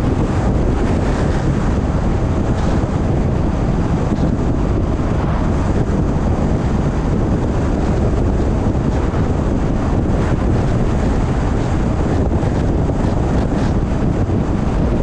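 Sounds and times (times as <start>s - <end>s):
car road noise rumble: 0.0s - 15.0s
wind buffeting microphone: 0.0s - 15.0s.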